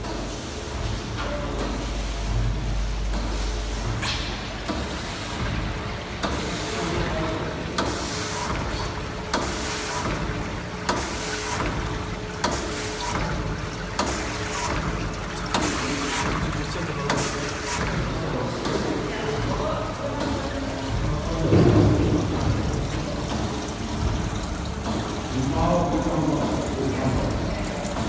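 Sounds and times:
steady machine hum: 0:00.0 - 0:28.0.

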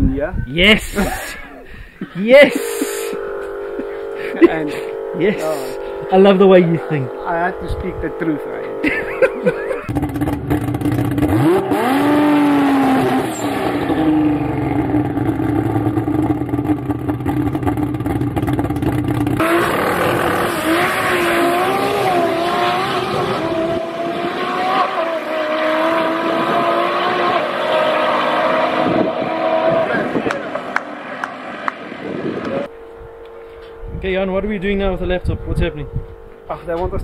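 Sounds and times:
drag car engine revving: 0:02.5 - 0:32.7
race car passing: 0:19.4 - 0:33.9.

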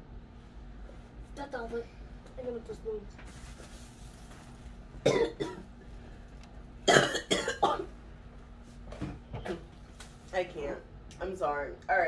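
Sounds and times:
woman gagging and coughing: 0:05.0 - 0:05.6, 0:06.9 - 0:07.9.

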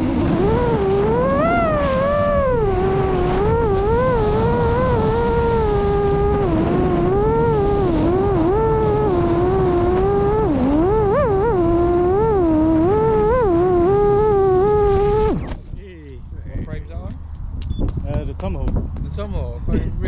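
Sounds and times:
electric motor and propeller whining: 0:00.0 - 0:15.9
wind rushing: 0:00.0 - 0:19.2.

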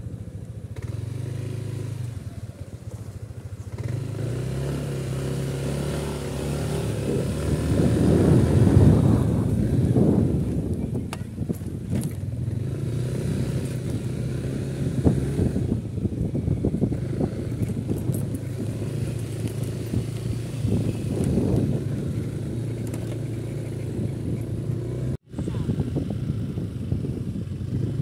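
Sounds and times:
motorcycle engine running: 0:00.0 - 0:28.0
wind buffeting microphone: 0:03.8 - 0:28.0.

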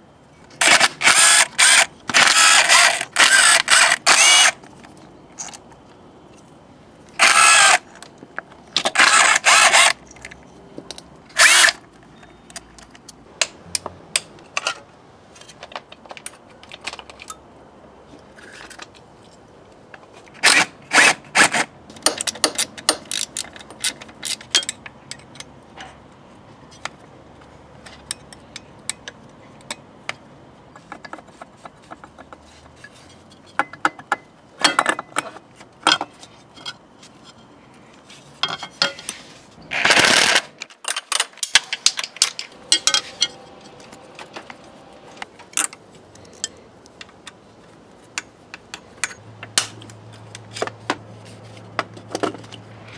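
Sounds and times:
cordless drill bursts: 0:00.6 - 0:04.6, 0:07.2 - 0:07.8, 0:09.0 - 0:10.0
tools and metal parts clinking: 0:13.8 - 0:17.5, 0:21.9 - 0:26.0, 0:27.8 - 0:37.6, 0:38.4 - 0:47.4, 0:48.0 - 0:52.9.

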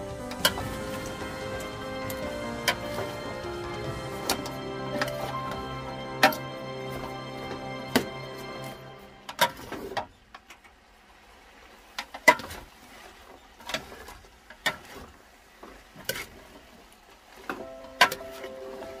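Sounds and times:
vegetables rustling: 0:00.0 - 0:10.0.

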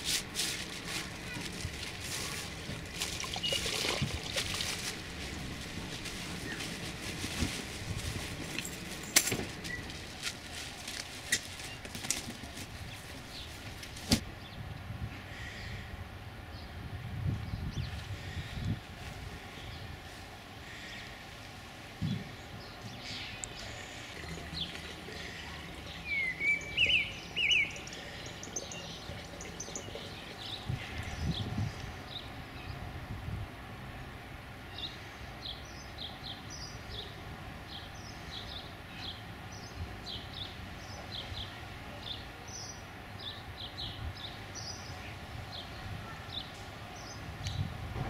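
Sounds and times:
packaging rustling and crackling: 0:00.0 - 0:14.2
high bird chirps: 0:23.5 - 0:31.4.

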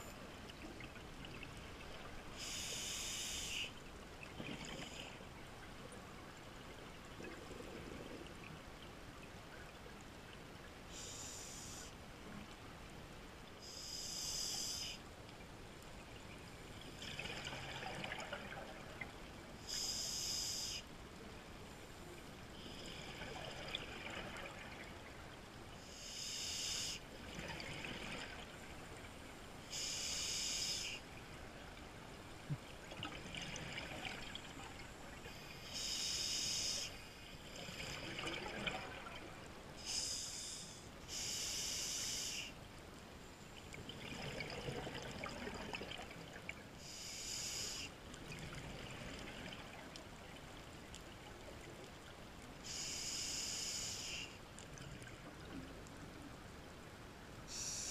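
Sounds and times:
soft regulator inhalations: 0:02.3 - 0:03.8, 0:10.9 - 0:12.0, 0:13.6 - 0:15.0, 0:19.7 - 0:20.9, 0:25.8 - 0:27.0, 0:29.6 - 0:31.0, 0:35.2 - 0:38.3, 0:39.8 - 0:42.6, 0:46.8 - 0:48.0, 0:52.6 - 0:54.4, 0:57.5 - 0:57.9.

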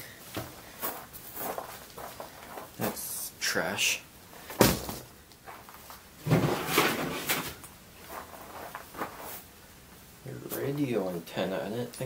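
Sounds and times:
car parts clattering and rustling: 0:04.5 - 0:09.5.

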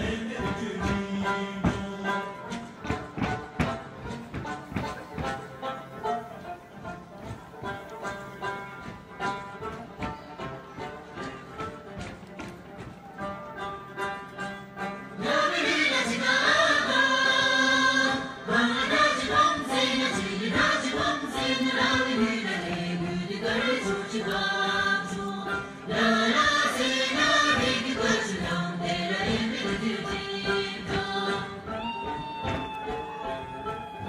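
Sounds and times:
group of voices singing: 0:00.0 - 0:02.7, 0:15.2 - 0:33.8
plucked strings: 0:00.0 - 0:16.3.

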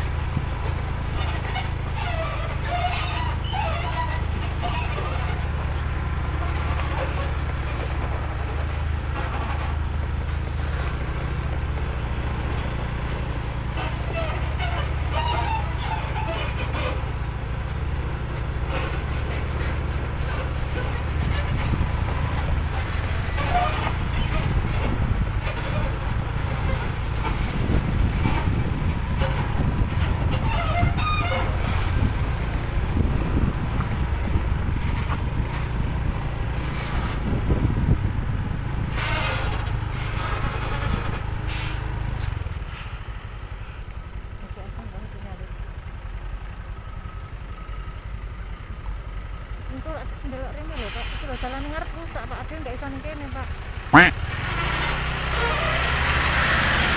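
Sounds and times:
road noise on rough surface: 0:00.0 - 0:56.9
vehicle engine droning: 0:00.0 - 0:56.9
air brake hisses: 0:41.5 - 0:41.9, 0:42.7 - 0:43.8, 0:50.8 - 0:51.7.

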